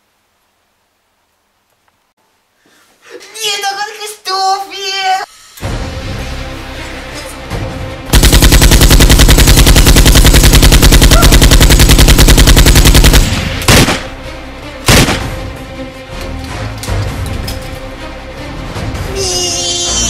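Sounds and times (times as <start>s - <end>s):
machine gun firing: 8.1s - 14.2s, 14.9s - 15.4s
single gunshots: 8.1s - 14.2s, 14.9s - 15.5s.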